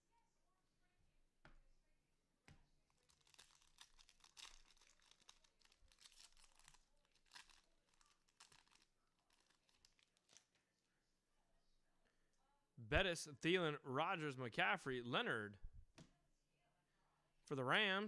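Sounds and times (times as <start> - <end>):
wrapper crinkling and tearing: 2.9 - 10.6.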